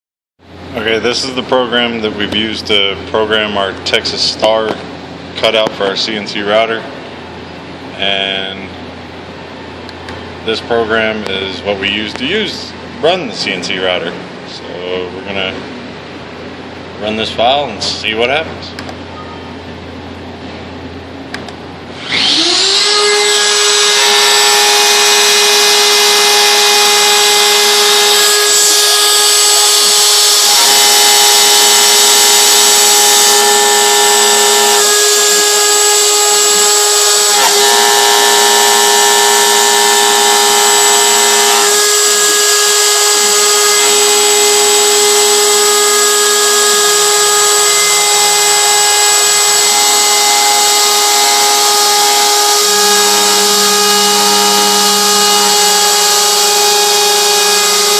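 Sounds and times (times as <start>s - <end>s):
router spindle whining: 21.4s - 57.9s.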